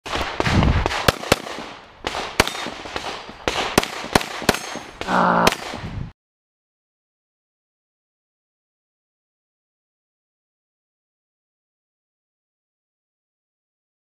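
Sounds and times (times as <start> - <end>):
pistol shots: 0.1 - 5.9.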